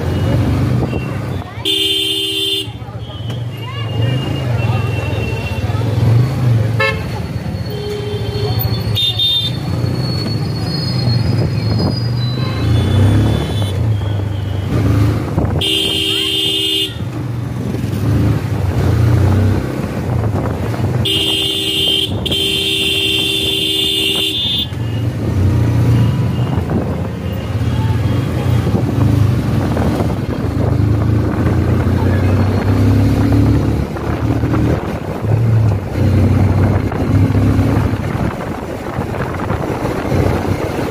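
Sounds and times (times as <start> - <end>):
motorcycle engine and road drone: 0.0 - 40.9
vehicle horn blasts: 1.6 - 3.3, 6.8 - 7.1, 7.7 - 9.6, 15.6 - 17.1, 21.0 - 24.8.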